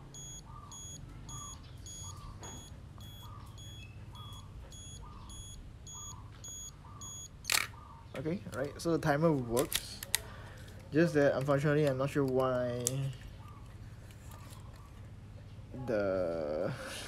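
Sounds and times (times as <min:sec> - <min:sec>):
self-timer beeping: 0:00.0 - 0:07.5
camera shutter click: 0:07.4 - 0:07.8.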